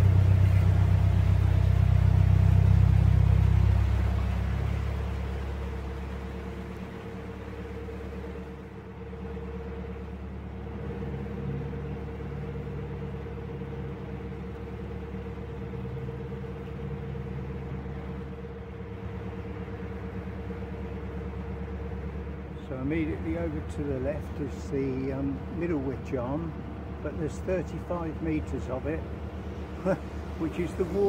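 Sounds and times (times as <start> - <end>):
boat diesel engine humming: 0.0 - 31.0.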